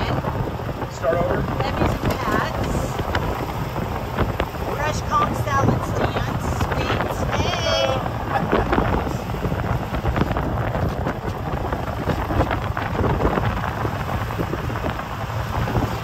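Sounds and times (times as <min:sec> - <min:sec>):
golf cart running and road noise: 0:00.0 - 0:16.0
wind buffeting microphone: 0:00.0 - 0:16.0.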